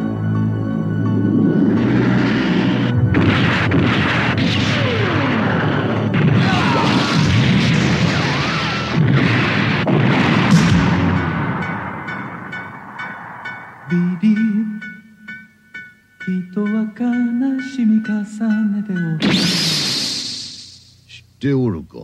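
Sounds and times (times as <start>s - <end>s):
background music: 0.0s - 21.1s
explosions: 1.5s - 13.9s
beam weapon shots: 1.9s - 13.3s, 19.2s - 20.9s
falling whistling tones: 19.2s - 20.9s.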